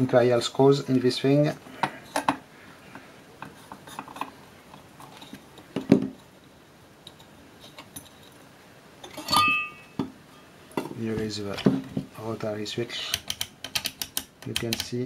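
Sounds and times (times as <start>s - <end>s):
ringing metal clink: 9.1s - 10.0s.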